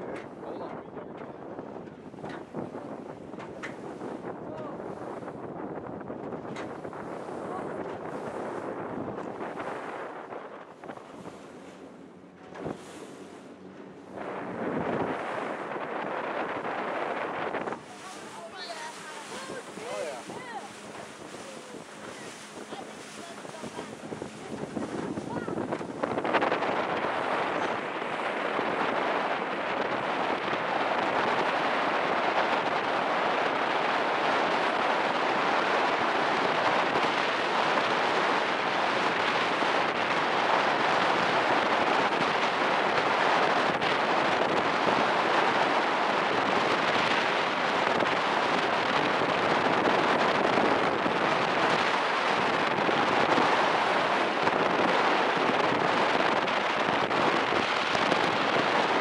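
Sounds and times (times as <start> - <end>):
wind buffeting microphone: 0.0 - 59.0
water hissing past boat hull: 10.8 - 27.8.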